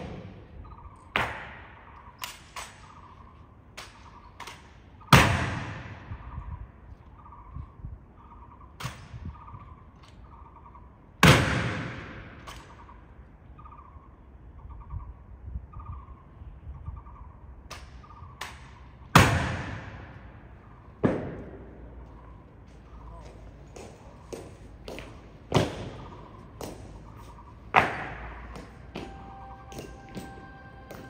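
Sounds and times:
bird calling faintly: 0:22.0 - 0:31.0.

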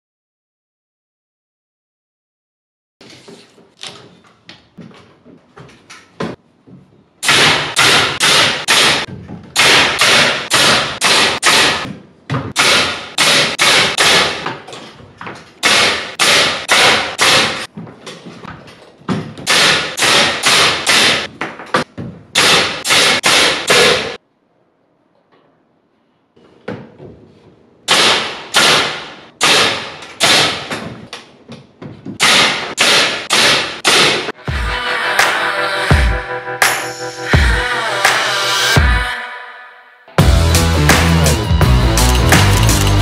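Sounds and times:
pneumatic nail gun shots: 0:07.2 - 0:11.9, 0:12.5 - 0:14.5, 0:15.6 - 0:17.7, 0:19.5 - 0:21.3, 0:22.4 - 0:24.2, 0:27.9 - 0:30.7, 0:32.2 - 0:34.4.

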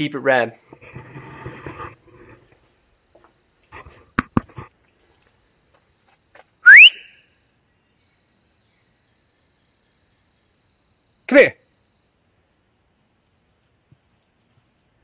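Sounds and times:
person whistling: 0:06.6 - 0:07.2.

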